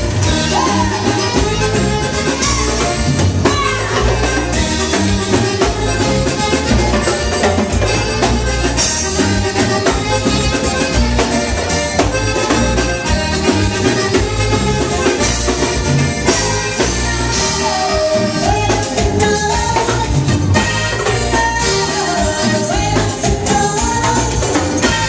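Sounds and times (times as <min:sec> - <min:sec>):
drum kit: 0:00.0 - 0:25.0
guitar: 0:00.0 - 0:25.0
woman singing lead: 0:00.1 - 0:07.2, 0:16.2 - 0:25.0.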